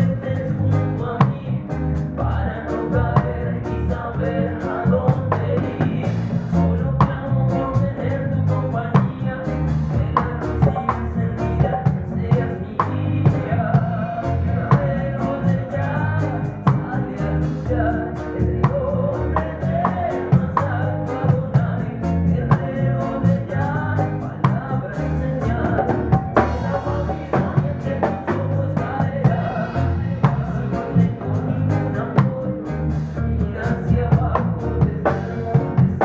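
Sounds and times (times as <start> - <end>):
live reggae band: 0.0 - 36.0
steady drum beat: 0.0 - 36.0
wavering lead melody: 25.6 - 31.8.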